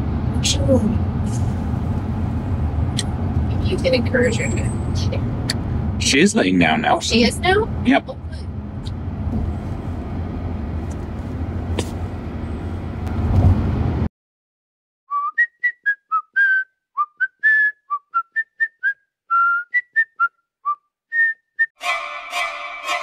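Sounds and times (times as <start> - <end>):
car cabin road noise: 0.0 - 14.1
whistled melody: 15.1 - 23.0.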